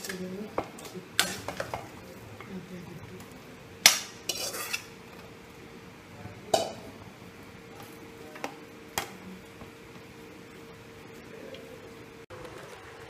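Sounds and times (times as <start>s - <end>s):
steel bowl scraping against pot: 3.8s - 5.0s.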